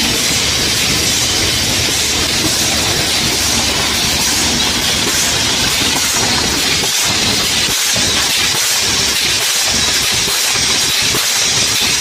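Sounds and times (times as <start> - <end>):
machine rattle of cans: 0.2 - 12.0.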